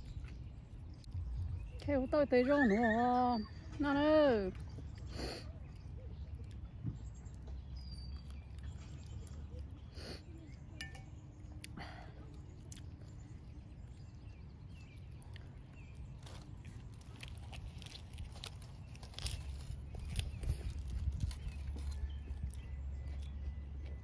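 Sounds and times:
wind rumble on microphone: 0:00.0 - 0:05.0, 0:14.9 - 0:24.0
lettuce wraps crackling: 0:11.6 - 0:23.8.

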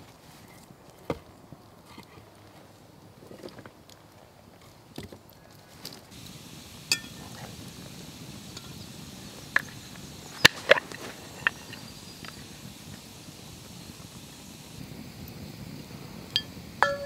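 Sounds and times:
campfire burning: 0:02.4 - 0:17.0
sharp metallic clinks: 0:06.9 - 0:07.4, 0:16.4 - 0:17.0.

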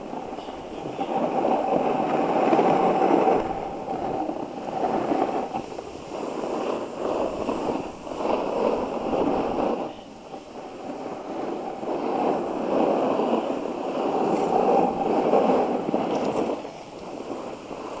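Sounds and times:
snowboard scraping over snow: 0:00.0 - 0:18.0.

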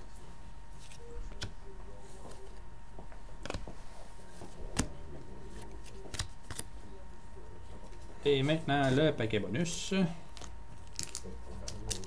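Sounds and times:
trading cards clicking: 0:05.8 - 0:06.7.

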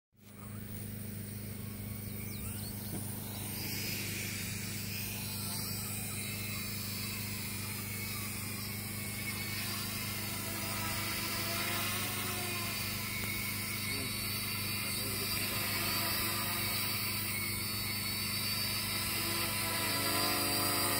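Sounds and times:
drone motors whirring: 0:00.2 - 0:20.9.

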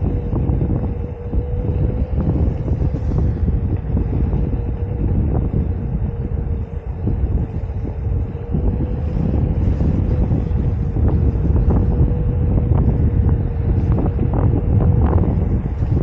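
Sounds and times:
electric motor whine: 0:00.0 - 0:16.0
wind buffeting microphone: 0:00.0 - 0:16.0.

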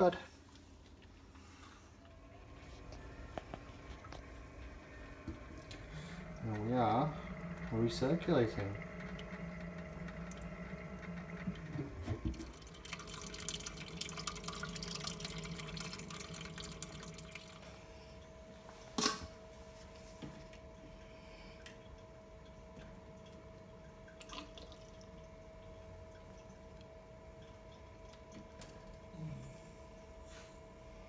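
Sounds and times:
steady machine hum: 0:00.0 - 0:31.0
liquid splashing and dripping: 0:08.3 - 0:17.7, 0:21.6 - 0:28.9.

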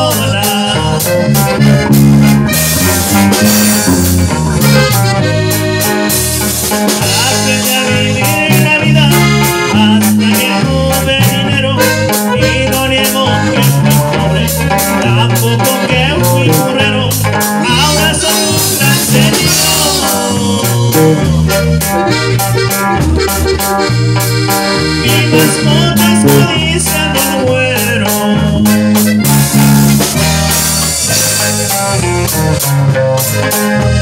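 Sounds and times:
person singing: 0:00.0 - 0:01.6, 0:07.0 - 0:21.8, 0:25.0 - 0:29.0
electric bass: 0:00.0 - 0:34.0
live band playing: 0:00.0 - 0:34.0
steady drum beat: 0:00.0 - 0:34.0.

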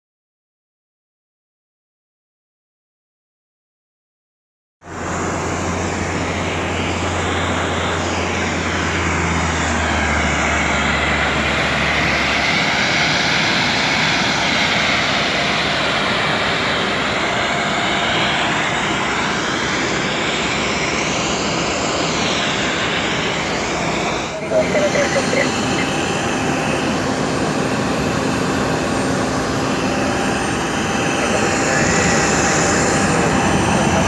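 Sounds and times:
airliner engines running: 0:04.8 - 0:34.0
low hum: 0:15.8 - 0:34.0.

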